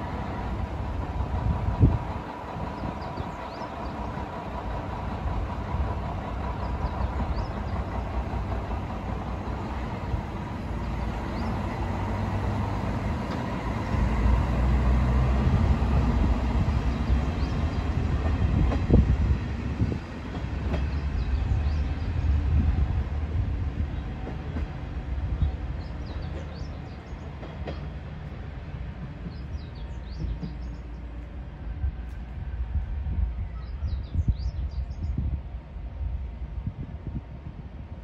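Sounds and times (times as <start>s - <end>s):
diesel railcar engine and wheels rumbling: 0.0s - 38.0s.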